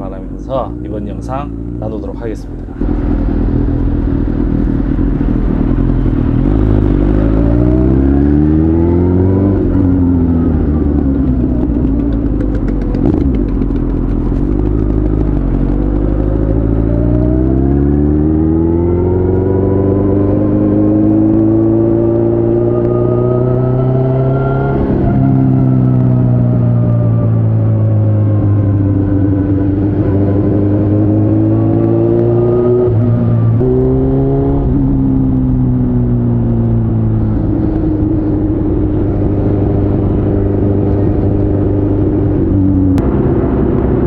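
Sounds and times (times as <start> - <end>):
motorcycle engine revving: 0.0 - 44.0.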